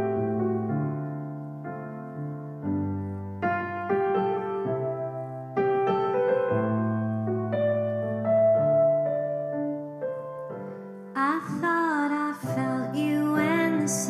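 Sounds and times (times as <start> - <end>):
keyboard piano chords: 0.0 - 14.0
woman singing: 11.2 - 14.0.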